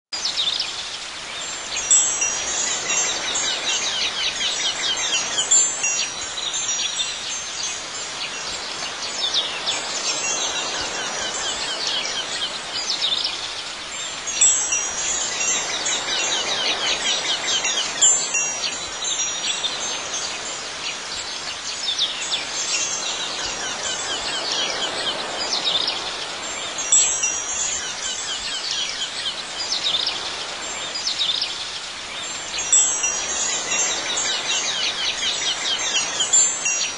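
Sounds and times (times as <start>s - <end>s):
high ringing chime tones: 1.8s - 7.7s, 14.3s - 20.2s, 26.8s - 28.3s, 32.6s - 36.9s.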